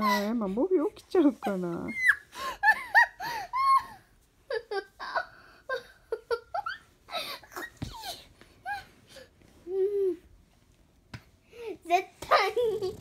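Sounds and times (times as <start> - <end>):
girl giggling: 1.9 - 8.9.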